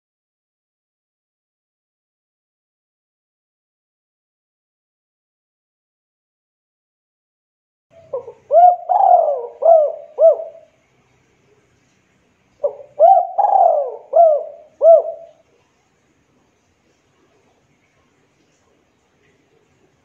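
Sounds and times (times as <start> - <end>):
dove cooing: 8.0 - 10.8, 12.6 - 15.4.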